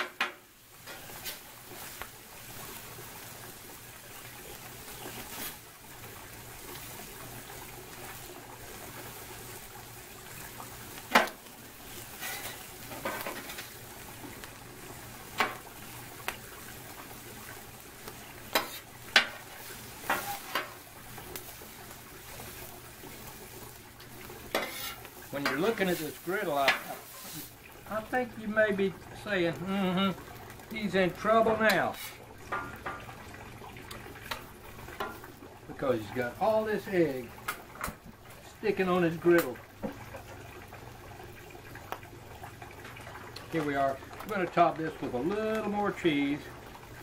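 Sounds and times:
food sizzling on griddle: 0.0 - 47.0
metal spatulas scraping: 12.1 - 13.2, 24.5 - 25.6, 31.9 - 32.2.

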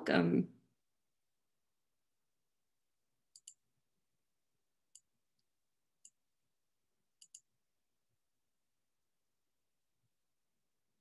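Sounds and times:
computer mouse clicks: 3.3 - 3.6, 4.9 - 6.2, 7.2 - 7.5.

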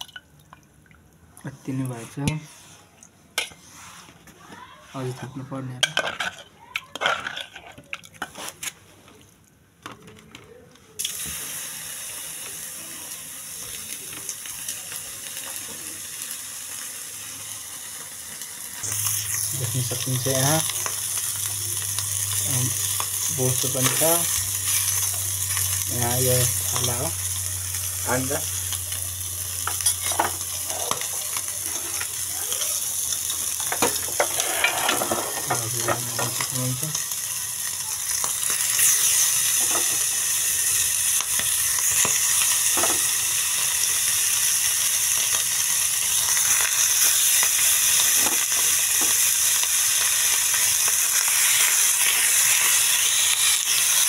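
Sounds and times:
steady high hiss: 11.0 - 31.2
meat sizzling in a pan: 11.0 - 54.0.

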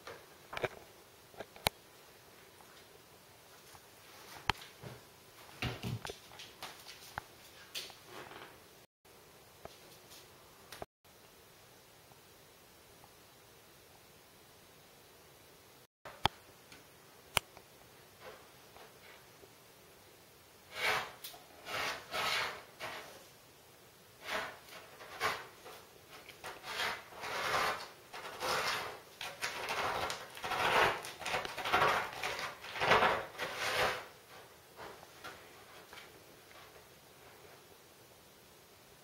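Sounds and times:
cat scratching litter: 20.7 - 23.2, 24.2 - 36.1.

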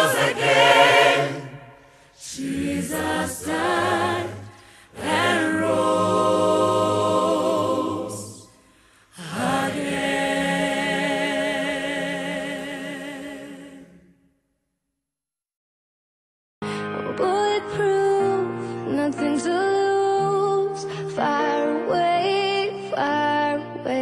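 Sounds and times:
choir singing a cappella: 0.0 - 14.1.

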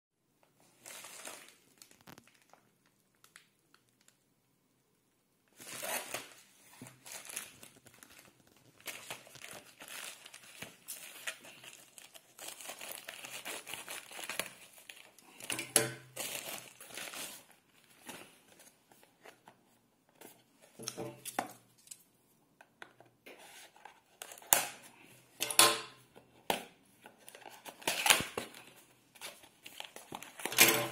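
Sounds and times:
plastic bag crinkling: 0.8 - 4.2, 5.6 - 18.3.

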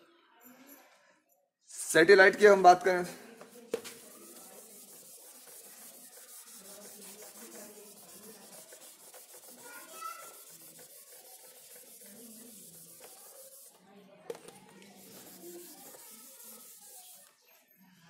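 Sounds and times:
eraser rubbing on whiteboard: 3.4 - 17.4.

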